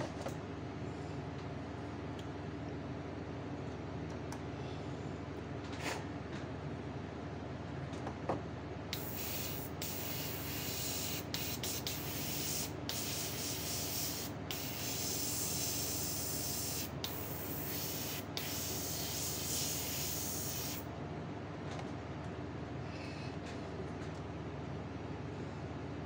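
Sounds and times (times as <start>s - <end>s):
airbrush spraying hiss: 8.9s - 20.9s.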